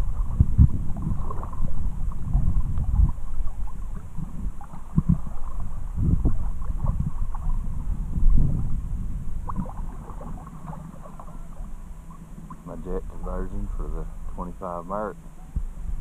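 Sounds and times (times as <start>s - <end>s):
small water splashes: 0.0s - 8.0s, 9.4s - 12.8s
river water lapping and gurgling: 0.0s - 15.8s.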